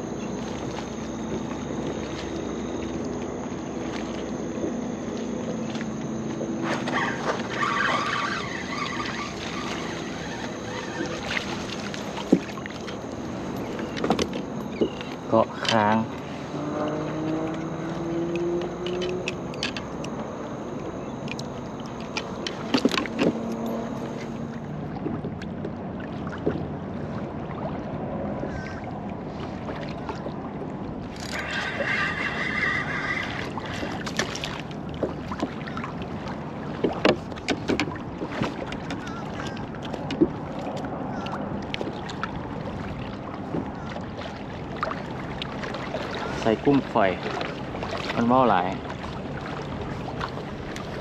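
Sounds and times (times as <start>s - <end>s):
fishing reel whirring: 0.0s - 24.6s, 31.1s - 34.5s
water lapping at a kayak: 0.0s - 51.0s
fishing reel chattering: 6.9s - 11.4s.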